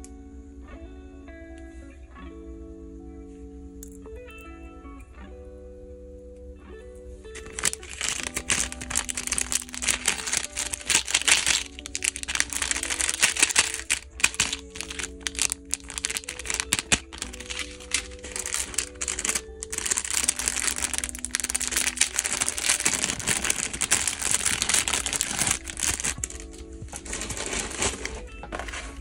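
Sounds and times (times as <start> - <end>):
soft guitar music: 0.0 - 29.0
plastic bag crinkling: 7.4 - 29.0.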